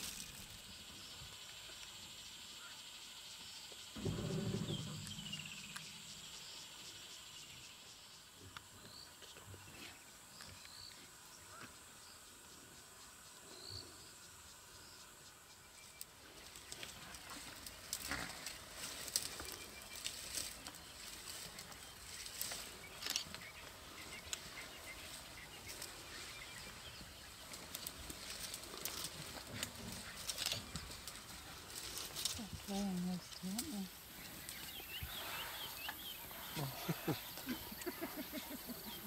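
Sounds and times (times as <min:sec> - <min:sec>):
short insect chirps: 0:00.0 - 0:09.1
high insect trill: 0:00.0 - 0:09.3, 0:09.9 - 0:39.0
rustling and snapping vegetation: 0:16.5 - 0:33.8.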